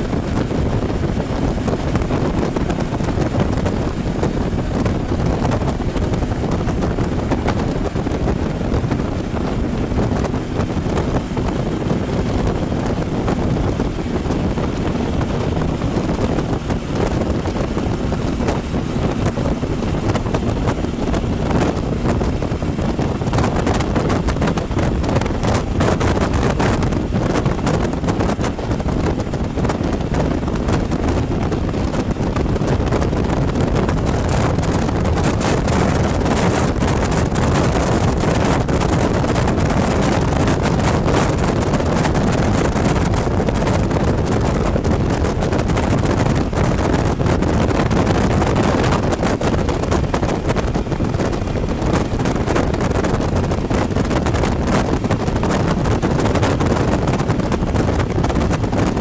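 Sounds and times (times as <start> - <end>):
motorcycle running noise: 0.0 - 59.0
wind rush over microphone: 0.0 - 59.0.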